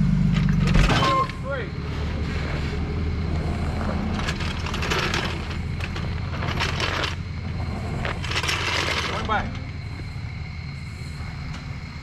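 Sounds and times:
vehicle engine idling: 0.0s - 12.0s
crunching gritty noise: 1.6s - 9.8s.

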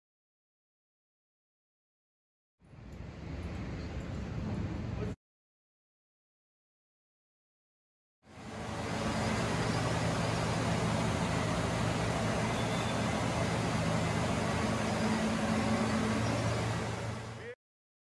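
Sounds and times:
machinery hiss: 8.3s - 17.6s
machinery low hum: 8.3s - 17.6s.

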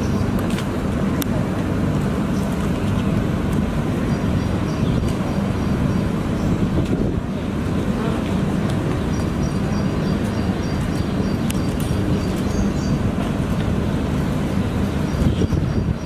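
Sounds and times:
street traffic rumble: 0.0s - 16.0s
faint sharp clicks: 11.4s - 12.5s.

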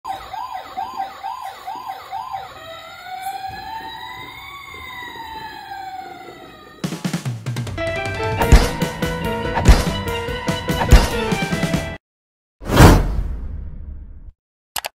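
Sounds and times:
toy police car siren: 0.0s - 7.1s.

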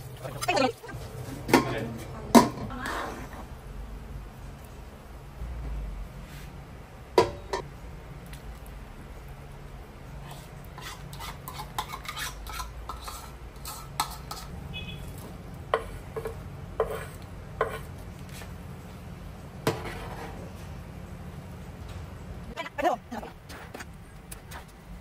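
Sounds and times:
broth simmering: 0.0s - 1.5s, 2.3s - 21.8s
steady low hum: 0.0s - 25.0s
metal utensil scraping a pan: 10.3s - 14.9s, 19.7s - 20.4s.

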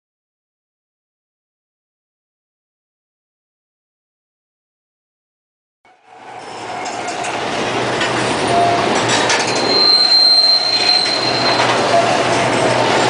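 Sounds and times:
steady high squeal: 5.9s - 13.0s
dense rumbling clattering noise: 6.9s - 9.6s.

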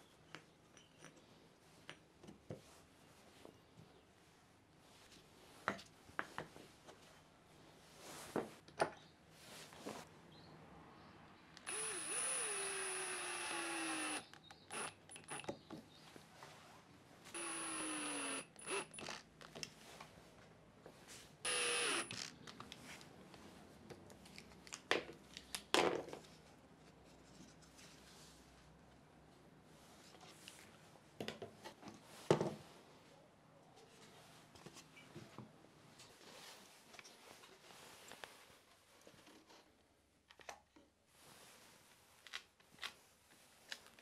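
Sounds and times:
cordless drill drilling into wood: 11.6s - 15.4s, 17.3s - 19.2s, 21.5s - 22.3s.

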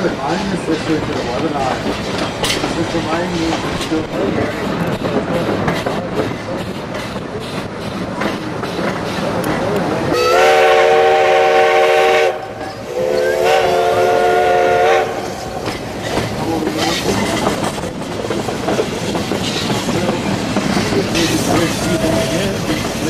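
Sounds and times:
train rumbling and rattling on track: 0.0s - 23.0s
steam locomotive whistle: 10.1s - 15.4s.

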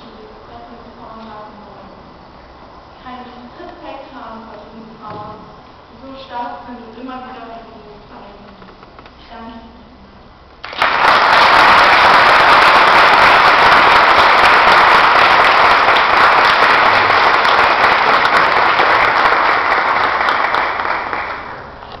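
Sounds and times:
audience applause: 10.6s - 21.7s.

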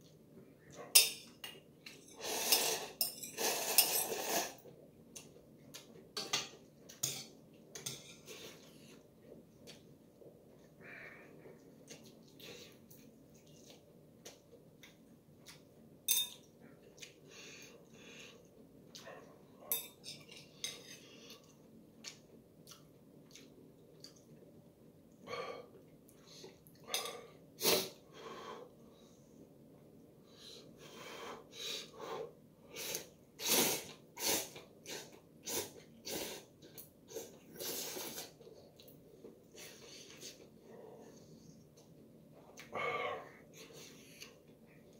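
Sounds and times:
breathing: 10.8s - 11.4s, 17.3s - 18.5s
chewing: 11.5s - 15.7s, 21.1s - 24.5s
utensils clinking on ceramic bowl: 16.1s - 16.5s, 19.7s - 21.0s.

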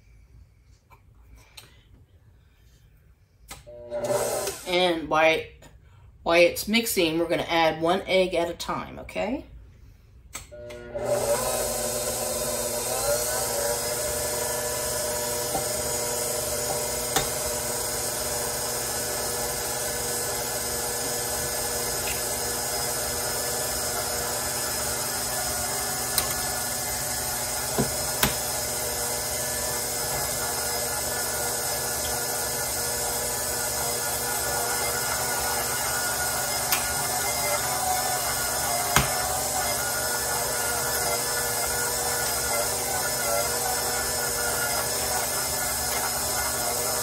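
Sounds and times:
stand mixer motor running: 10.7s - 47.0s.

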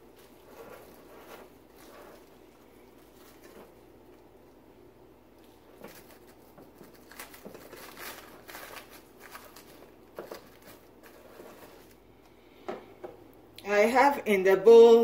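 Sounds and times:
plastic wrap crinkling: 0.0s - 4.6s, 5.3s - 12.0s.

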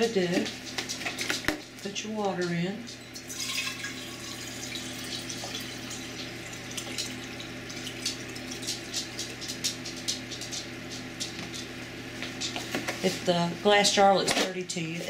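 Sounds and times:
water pouring into glass jar: 3.1s - 8.7s.

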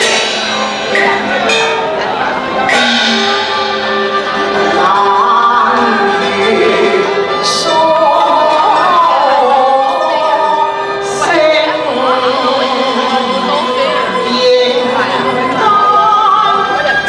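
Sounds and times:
small instrumental ensemble: 0.0s - 17.0s
woman singing opera: 4.7s - 17.0s.

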